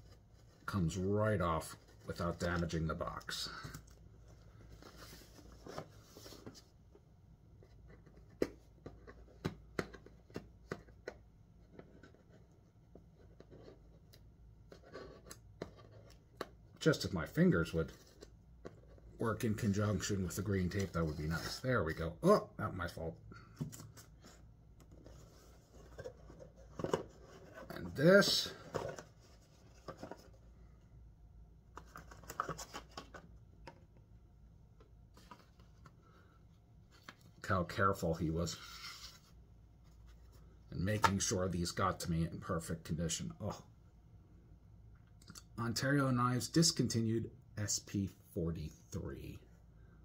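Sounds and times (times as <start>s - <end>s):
cardboard box handled and opened: 23.6s - 30.4s.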